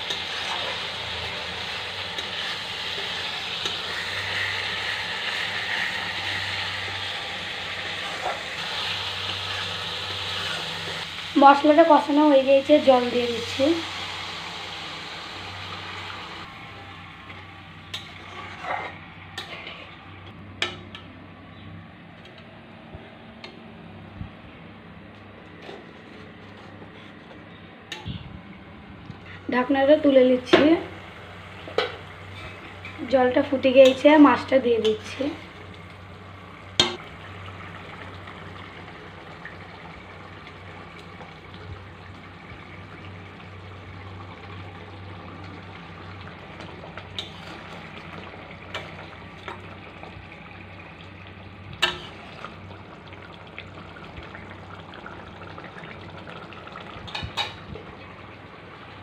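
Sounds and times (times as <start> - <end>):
spice paste sizzling in a pan: 0.0 - 16.4
gravy bubbling in a pan: 35.0 - 59.0.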